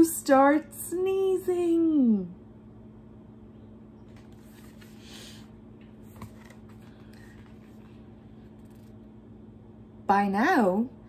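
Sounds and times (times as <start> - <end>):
steady low hum: 0.0 - 11.0
book page rustling: 4.1 - 5.2, 5.8 - 9.0.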